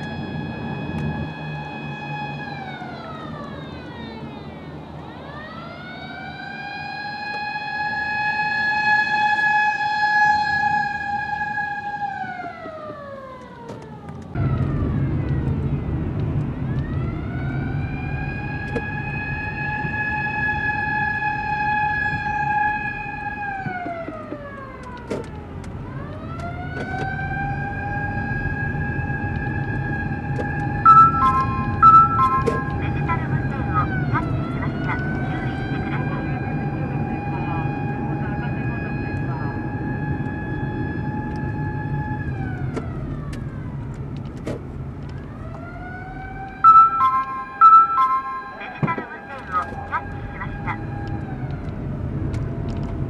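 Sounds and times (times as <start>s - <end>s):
electronic siren wailing: 0.0s - 13.6s, 16.6s - 25.0s, 25.8s - 43.7s, 45.2s - 51.8s
low road rumble: 0.0s - 53.0s
two-pitch electronic tone: 30.9s - 33.0s, 46.6s - 49.1s.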